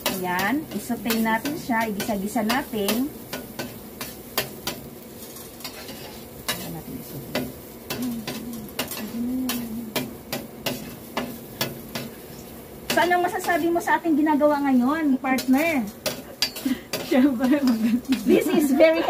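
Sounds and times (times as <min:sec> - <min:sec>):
metal spoon scraping a skillet: 0:00.0 - 0:13.9, 0:15.3 - 0:19.0
light sizzle: 0:00.0 - 0:19.0.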